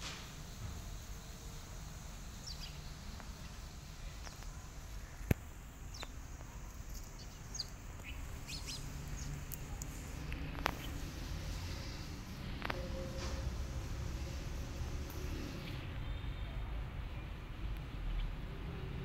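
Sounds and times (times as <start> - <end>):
low outdoor rumble: 0.0 - 19.0
small birds chirping: 0.9 - 12.8, 14.1 - 19.0.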